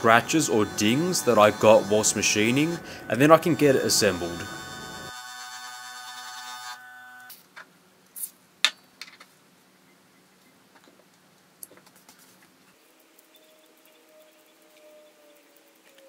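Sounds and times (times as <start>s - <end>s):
steady ringing tone: 0.0s - 5.3s.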